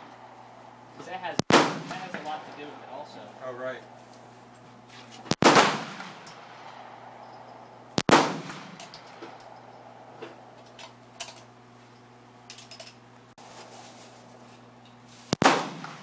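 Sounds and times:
handgun shots with echo: 5.4 - 6.5, 8.0 - 9.4, 15.4 - 16.0.

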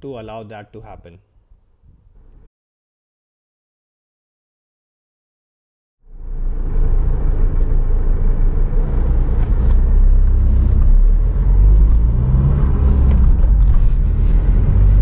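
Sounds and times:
car cabin road and engine rumble: 6.3 - 15.0.

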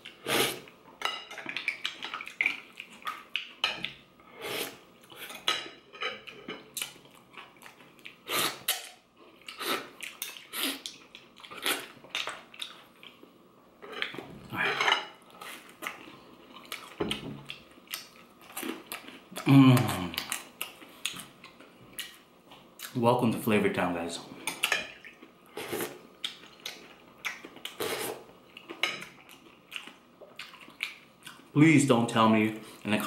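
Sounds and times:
chewing: 1.3 - 4.0, 6.2 - 13.3, 15.4 - 23.0, 24.5 - 31.5.

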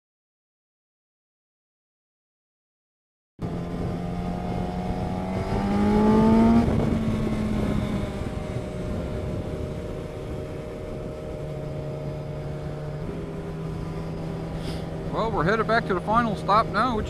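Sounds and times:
motorcycle engine accelerating: 3.4 - 17.0
road and wind rush: 3.4 - 17.0.

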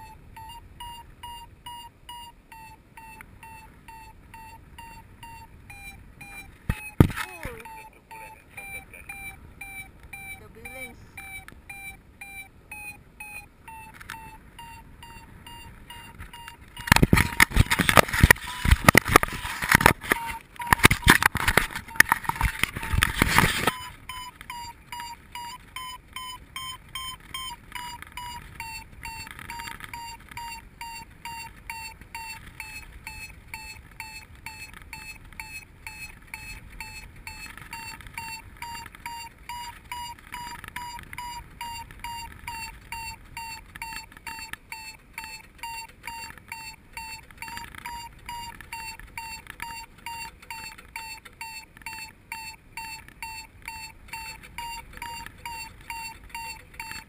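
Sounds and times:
variometer short beeps: 0.0 - 57.0.

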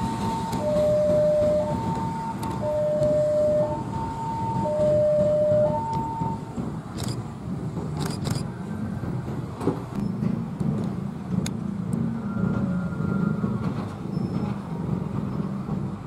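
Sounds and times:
locomotive engine rumble: 0.0 - 16.0
locomotive horn: 0.2 - 6.4.

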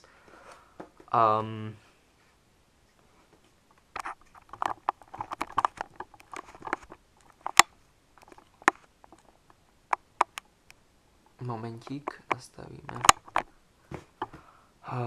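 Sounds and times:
sharp clicks: 11.8 - 13.5.

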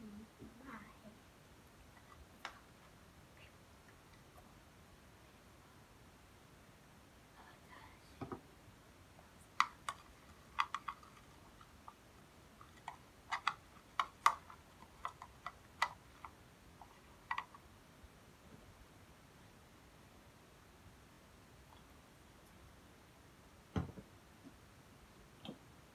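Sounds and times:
toothbrush tapping plastic container: 9.6 - 12.0, 12.6 - 17.6
dull knock: 23.7 - 24.1.

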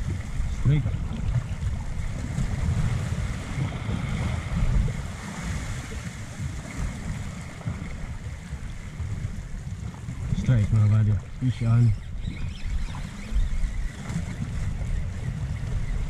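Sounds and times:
small waves washing over rocks: 0.0 - 11.6
wind buffeting microphone: 0.0 - 16.0.

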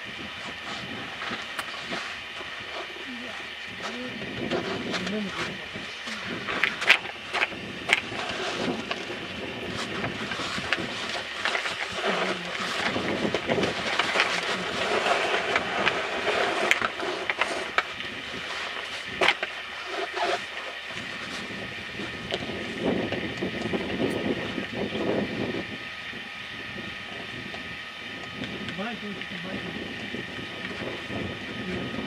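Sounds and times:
rustling and rattling handling noise: 6.5 - 21.6.

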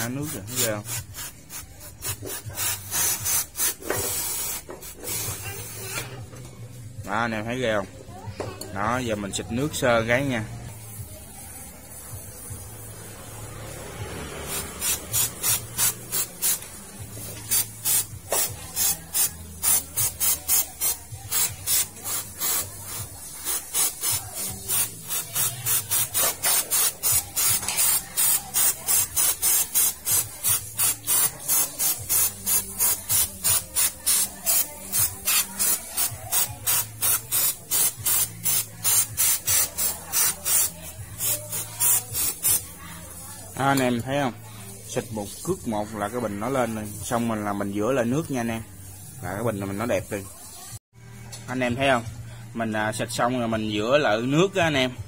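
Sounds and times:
aerosol spray short hisses: 0.0 - 6.0, 14.4 - 42.8.

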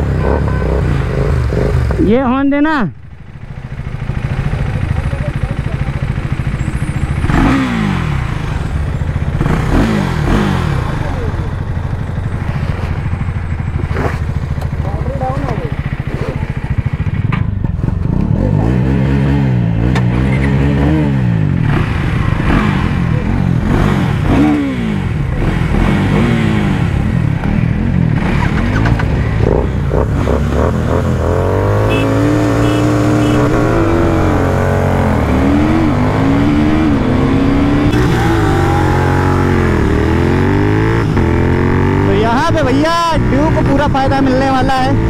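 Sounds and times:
motorcycle engines revving: 0.0 - 45.0.

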